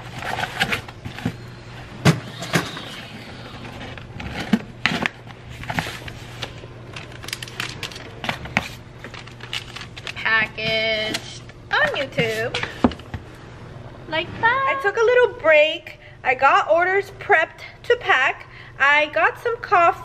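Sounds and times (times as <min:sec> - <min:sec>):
cardboard scraping and rustling: 0:00.0 - 0:01.4, 0:02.3 - 0:06.6.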